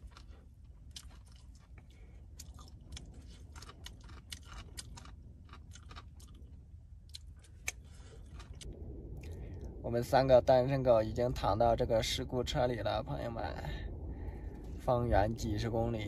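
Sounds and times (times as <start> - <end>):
person chewing: 0.0 - 9.4.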